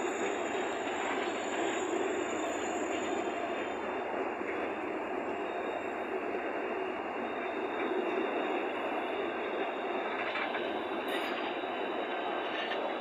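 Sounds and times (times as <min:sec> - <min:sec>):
freight wagons rolling on rails: 0:07.2 - 0:13.0.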